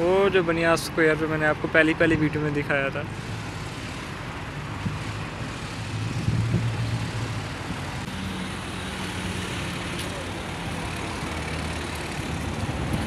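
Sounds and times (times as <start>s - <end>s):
vehicle engines running: 0.0s - 13.0s
vehicle passing close by: 4.6s - 13.0s.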